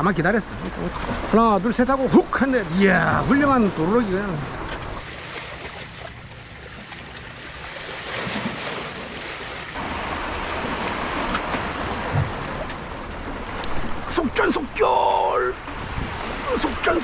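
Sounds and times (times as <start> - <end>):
waves washing against rocks: 5.0 - 12.6
wind noise on microphone: 15.7 - 16.5.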